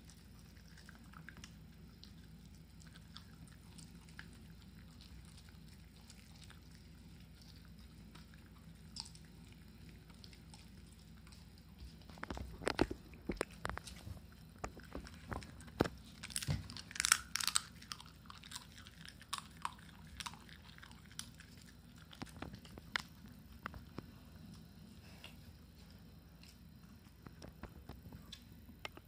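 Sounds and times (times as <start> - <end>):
dog chewing crunchy treats: 0.0 - 29.0.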